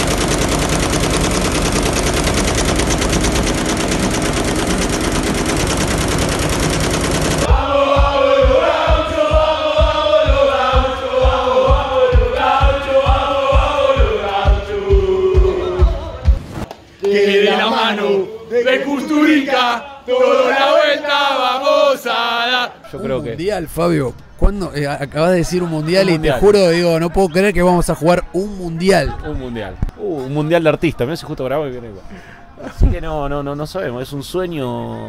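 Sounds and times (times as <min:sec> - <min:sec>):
embroidery machine needles rattling: 0:00.0 - 0:07.5
men singing a chant: 0:07.4 - 0:16.4, 0:17.0 - 0:23.2
steady low beat: 0:07.4 - 0:16.7.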